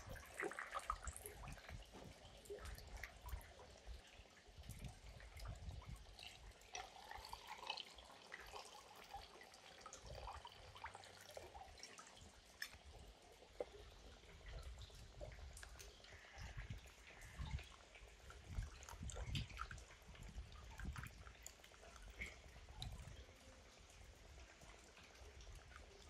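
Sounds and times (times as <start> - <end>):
drink poured over ice: 6.8 - 9.6.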